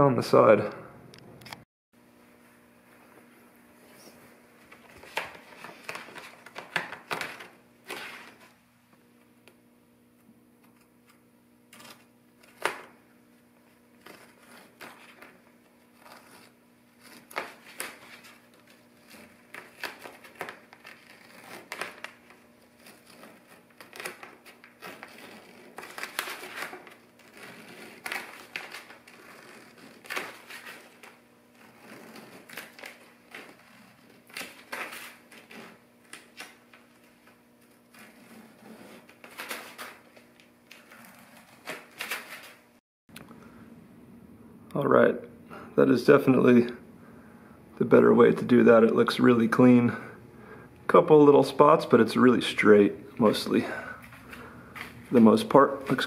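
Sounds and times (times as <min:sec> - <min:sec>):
tape peeling and cloth tearing: 0:11.7 - 0:13.0, 0:13.9 - 0:42.6.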